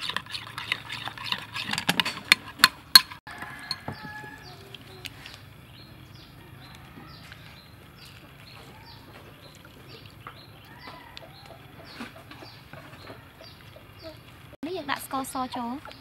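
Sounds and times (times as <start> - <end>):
small bird chirping: 3.9 - 16.0.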